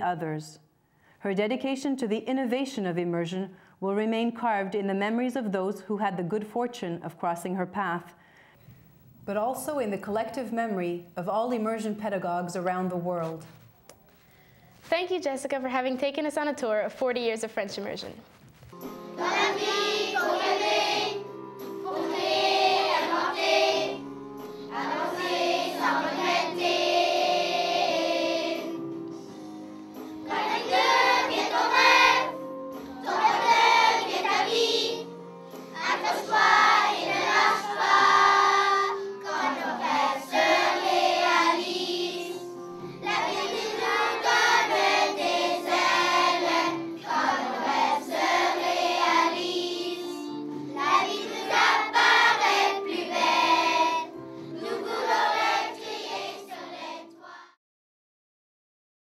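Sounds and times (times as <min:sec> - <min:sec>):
instrumental accompaniment: 0:18.6 - 0:57.0
children's choir singing: 0:19.1 - 0:28.8, 0:30.2 - 0:35.1, 0:35.7 - 0:57.6.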